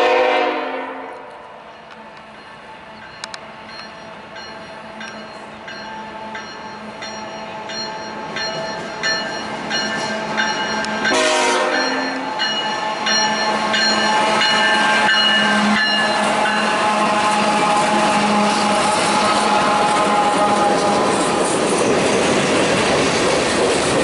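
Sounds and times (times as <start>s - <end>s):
train horn: 0.0s - 1.6s, 11.0s - 13.2s, 14.2s - 21.4s
diesel locomotives droning: 0.0s - 24.0s
locomotive bell ringing: 1.7s - 19.6s.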